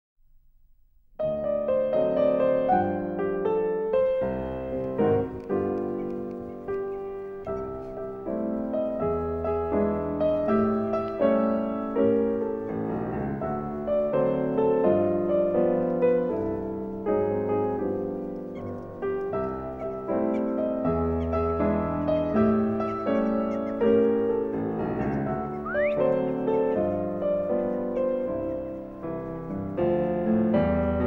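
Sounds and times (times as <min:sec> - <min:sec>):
piano music: 0:01.2 - 0:31.0.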